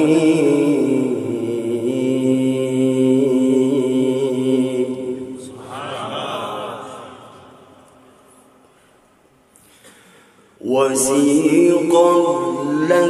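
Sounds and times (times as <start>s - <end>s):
man reciting over a microphone: 0.0s - 7.5s, 10.6s - 13.0s.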